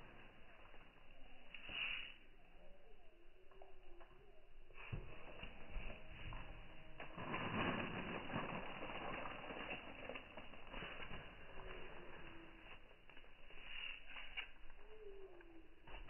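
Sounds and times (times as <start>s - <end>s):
fertilizer pattering onto plants: 4.8s - 11.9s
footsteps brushing through crops: 4.8s - 15.3s.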